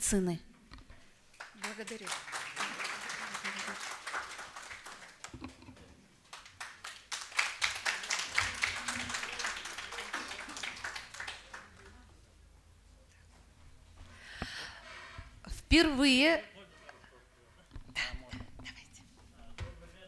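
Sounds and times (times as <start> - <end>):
small group clapping: 1.3 - 12.3.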